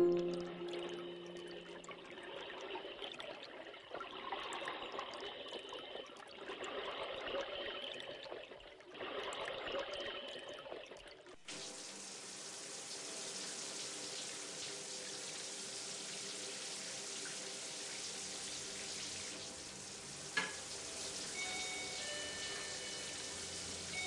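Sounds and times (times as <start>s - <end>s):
tap running into steel sink: 20.3s - 20.6s.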